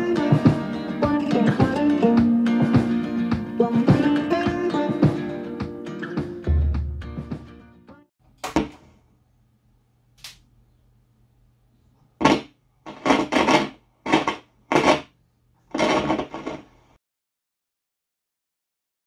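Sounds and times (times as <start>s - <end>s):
harsh scratchy bursts: 12.2s - 15.1s, 15.7s - 17.0s.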